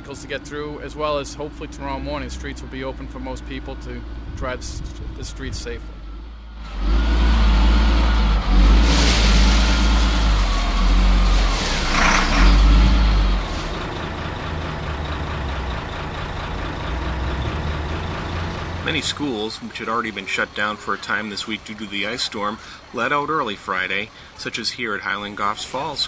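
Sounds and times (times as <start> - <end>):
heavy engines revving: 0.0 - 26.0
sand pouring into steel bed: 8.5 - 13.8.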